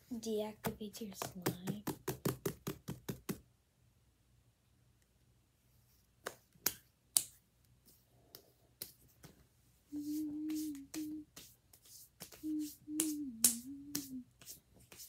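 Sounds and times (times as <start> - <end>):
steady low tone: 12.5 - 14.2.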